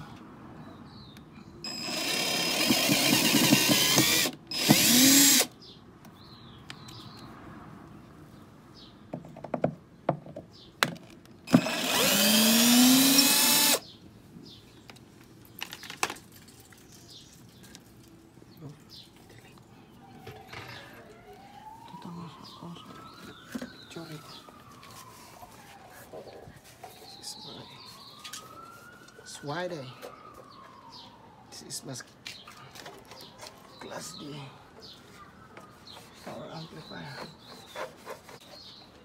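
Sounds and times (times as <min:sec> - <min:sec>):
cordless drill driving screws: 0:01.6 - 0:05.5, 0:11.5 - 0:13.8.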